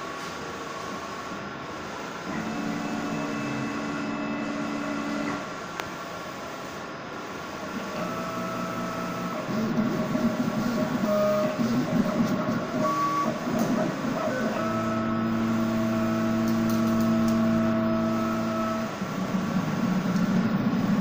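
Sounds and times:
steady hum: 0.0s - 21.0s
cutting plotter motors whining: 2.3s - 5.5s, 7.6s - 21.0s.

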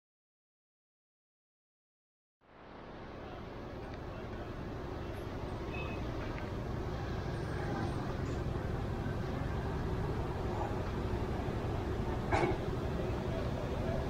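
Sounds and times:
traffic rumble: 2.4s - 14.0s
faint chatter: 3.1s - 14.0s.

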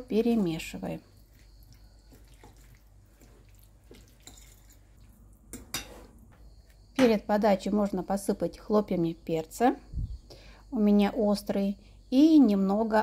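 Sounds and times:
fork stirring wet squelching: 0.0s - 6.8s.

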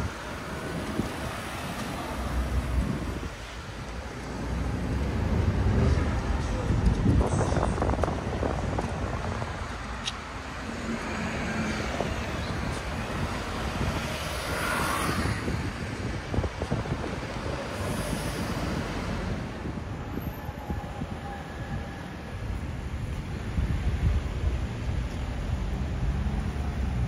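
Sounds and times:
road traffic rumble: 0.0s - 27.0s.

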